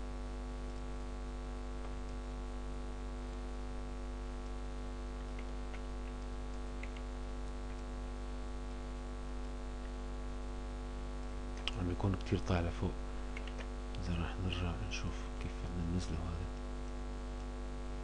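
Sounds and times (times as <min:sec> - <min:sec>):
electrical mains hum: 0:00.0 - 0:18.0
computer mouse clicks: 0:05.2 - 0:07.8, 0:13.3 - 0:14.0.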